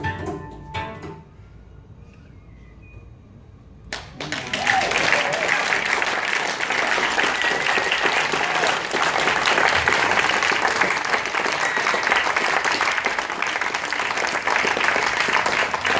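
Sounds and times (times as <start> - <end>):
audience applauding: 3.9 - 15.9.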